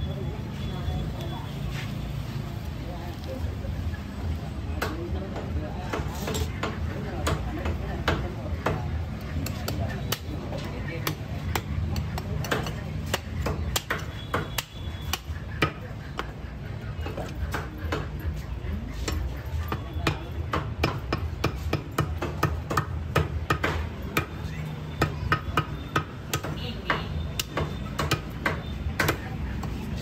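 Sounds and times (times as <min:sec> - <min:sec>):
cleaver chopping through bone: 0:04.8 - 0:16.3, 0:19.0 - 0:29.8.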